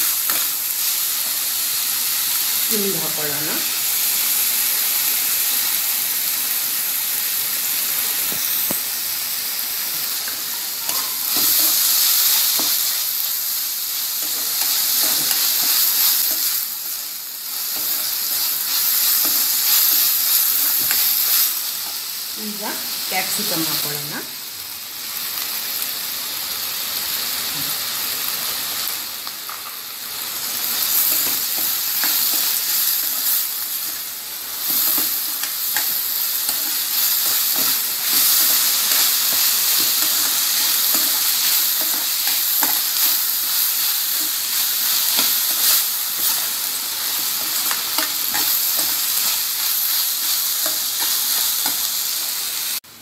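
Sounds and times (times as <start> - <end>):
vegetables sizzling in oil: 0.0 - 53.0.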